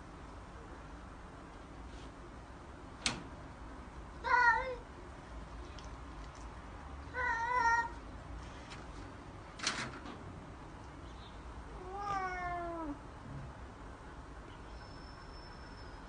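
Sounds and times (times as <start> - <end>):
cats yowling: 4.2 - 4.8, 7.1 - 8.0, 11.7 - 13.0.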